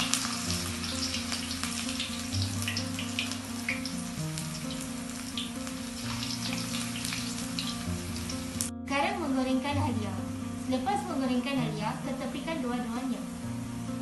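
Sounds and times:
ginger sizzling in hot oil: 0.0s - 8.7s
oil crackling and popping: 0.0s - 8.7s
background music: 0.0s - 14.0s.

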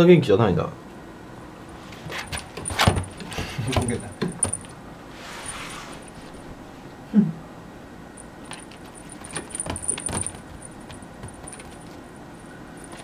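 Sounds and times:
light jingling: 1.7s - 4.8s, 8.2s - 13.0s
kitten paws tapping and scuffing: 1.8s - 4.8s, 8.4s - 12.1s, 12.8s - 13.0s.

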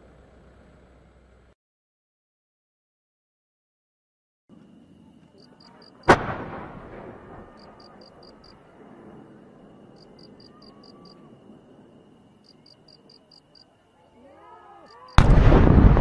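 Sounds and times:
firework boom echoing: 6.1s - 7.8s, 15.2s - 16.0s.

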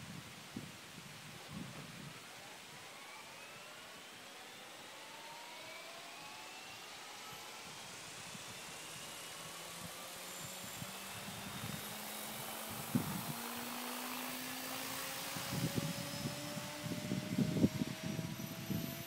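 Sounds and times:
helicopter motor and rotor whine: 1.4s - 19.0s
low rumbling buffets: 10.6s - 19.0s.

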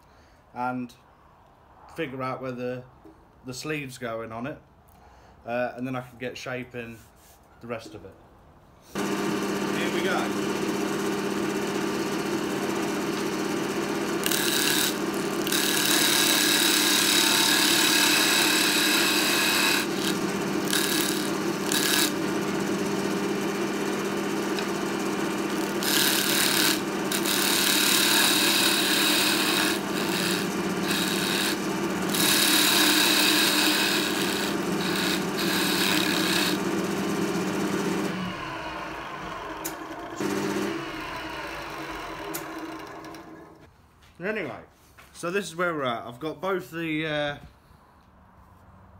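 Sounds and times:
lathe motor humming: 9.0s - 43.7s
tool scraping spinning wood: 9.0s - 43.7s.

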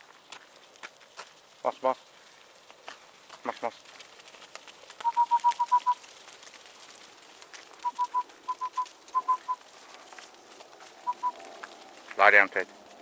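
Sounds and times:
whistle toots: 5.0s - 6.0s, 7.8s - 9.6s, 11.0s - 11.4s.

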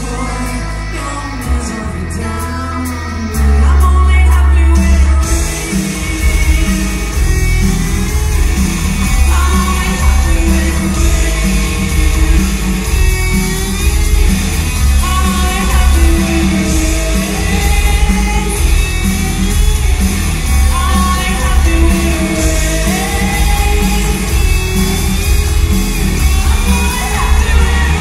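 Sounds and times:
woman singing into microphone: 0.0s - 7.1s, 9.0s - 12.4s, 14.9s - 19.0s, 20.6s - 24.7s, 26.1s - 28.0s
live rock band playing: 0.0s - 28.0s.

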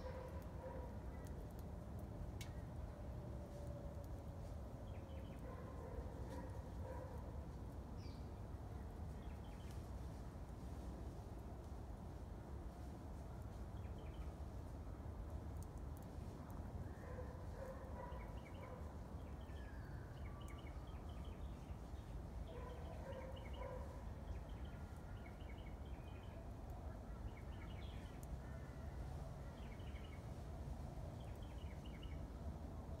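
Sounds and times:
birds chirping: 17.1s - 19.8s, 22.5s - 26.3s.

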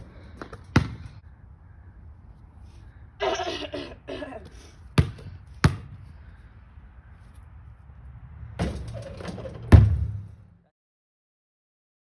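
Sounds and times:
basketball bouncing on pavement: 0.0s - 1.2s, 4.9s - 6.1s, 9.6s - 10.4s.

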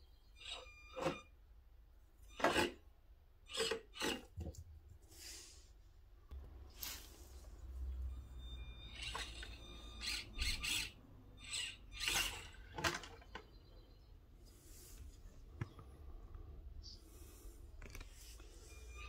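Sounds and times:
small electric motor whining: 8.8s - 12.8s.

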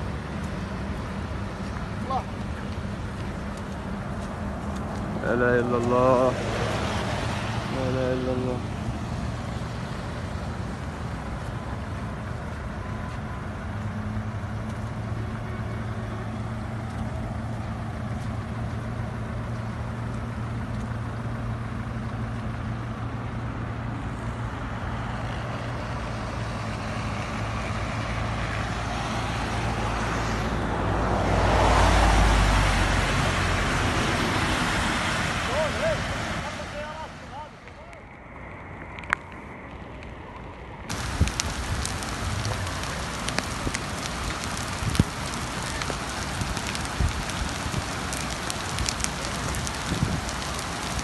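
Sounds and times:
rushing floodwater: 0.0s - 13.4s, 26.2s - 37.8s, 40.9s - 51.0s
car engine hum and road noise: 0.0s - 51.0s.

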